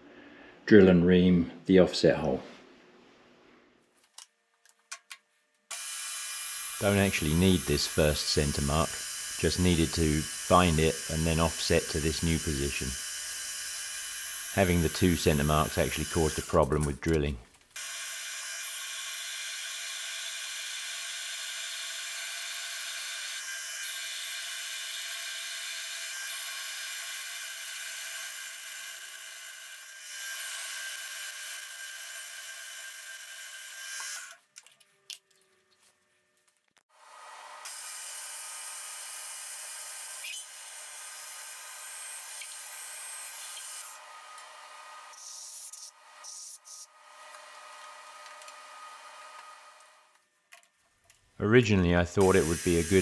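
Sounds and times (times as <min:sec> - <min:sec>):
milling machine drilling brass: 0:05.7 - 0:16.7, 0:52.2 - 0:53.0.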